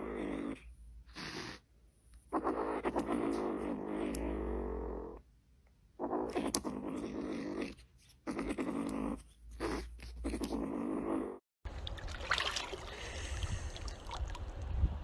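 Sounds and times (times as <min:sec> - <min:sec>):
kitten growling: 0:00.0 - 0:01.6, 0:02.3 - 0:05.2, 0:06.0 - 0:11.4
water sloshing and splashing: 0:11.7 - 0:14.8.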